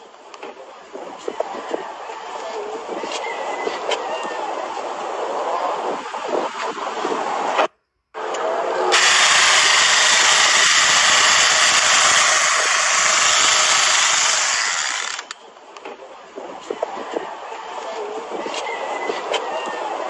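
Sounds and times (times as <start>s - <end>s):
chainsaw motor whirring: 8.9s - 15.4s.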